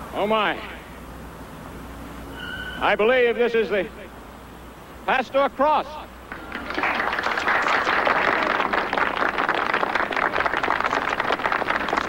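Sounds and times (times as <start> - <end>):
crowd applauding: 6.3 - 12.0.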